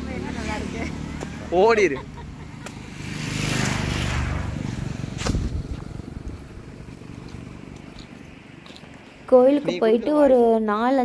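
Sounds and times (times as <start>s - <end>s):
motor vehicle passing: 0.0s - 10.4s
sharp knock: 5.2s - 5.6s.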